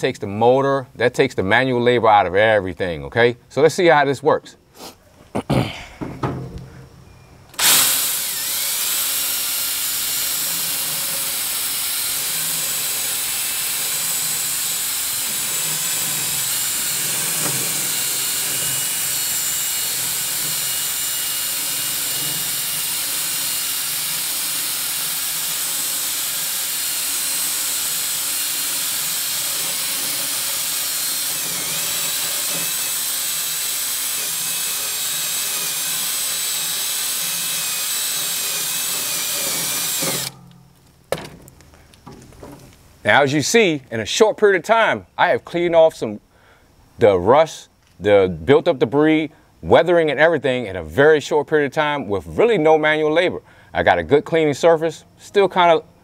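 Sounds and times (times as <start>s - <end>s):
drill motor whine: 7.6s - 40.4s.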